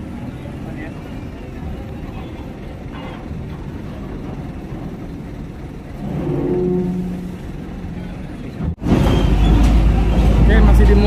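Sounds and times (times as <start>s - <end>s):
heavy engines rumbling: 0.0s - 11.0s.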